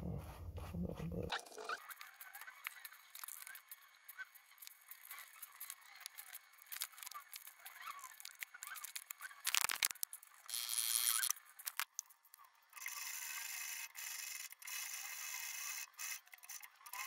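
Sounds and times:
small chirps: 1.3 - 13.0.

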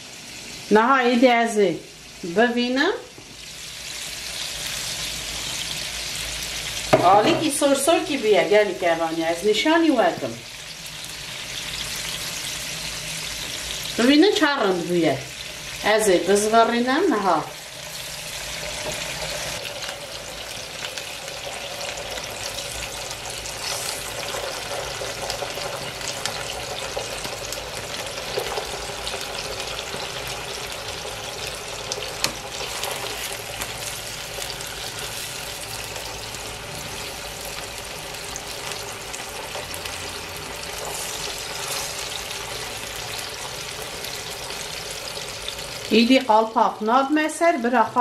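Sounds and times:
potatoes sizzling in a frying pan: 0.0 - 48.0.

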